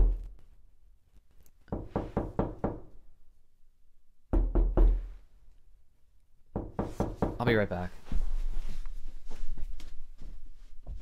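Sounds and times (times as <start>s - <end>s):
heavy knocking on a door: 1.7s - 2.8s, 4.3s - 5.1s, 6.5s - 7.5s.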